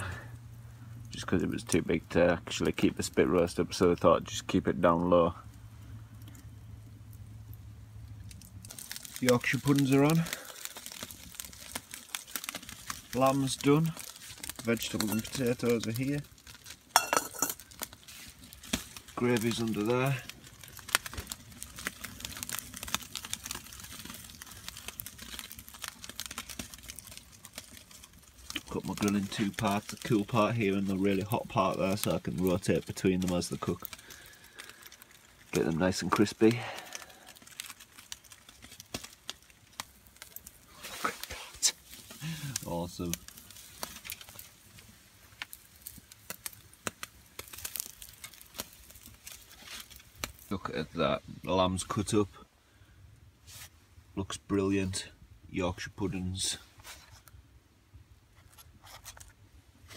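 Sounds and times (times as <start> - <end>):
campfire crackling: 0.0 - 59.9
faint hiss: 40.6 - 47.7.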